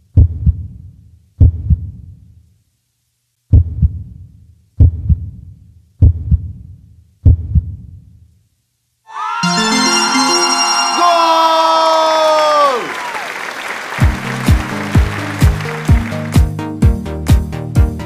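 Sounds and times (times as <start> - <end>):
heartbeat double thumps: 0.1 - 0.7, 1.4 - 1.9, 3.5 - 4.0, 4.8 - 5.4, 6.0 - 6.6, 7.2 - 7.8
music with sustained tones: 9.1 - 12.1.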